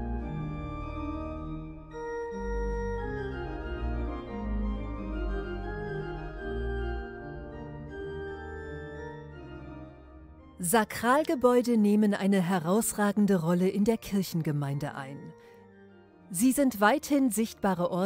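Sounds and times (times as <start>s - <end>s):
organ chords over deep bass: 0.0s - 10.5s.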